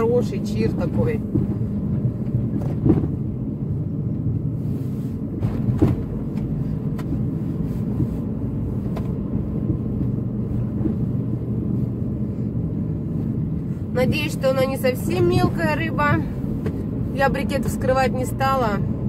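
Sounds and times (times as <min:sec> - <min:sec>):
car engine and tyre rumble: 0:00.0 - 0:19.0
faint clicks inside car: 0:05.3 - 0:11.2.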